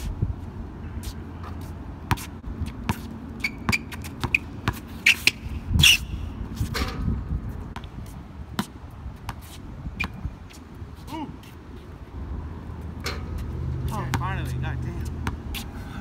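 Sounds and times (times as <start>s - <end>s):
sneakers squeaking on court: 1.0s - 7.0s, 7.8s - 11.9s
basketball bouncing: 2.1s - 4.8s, 15.1s - 15.4s.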